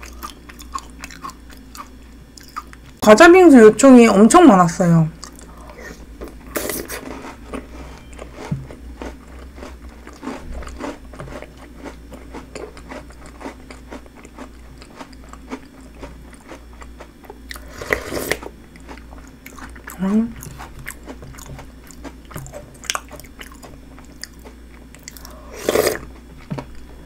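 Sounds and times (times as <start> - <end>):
chewing and crunching snack: 0.0 - 3.0, 5.2 - 26.9.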